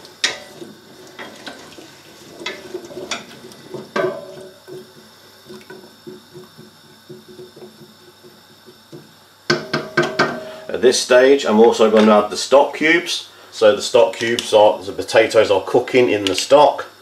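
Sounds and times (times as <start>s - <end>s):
liquid sloshing: 0.0s - 7.9s
spoon knocking against pot: 2.5s - 5.0s, 5.7s - 10.5s.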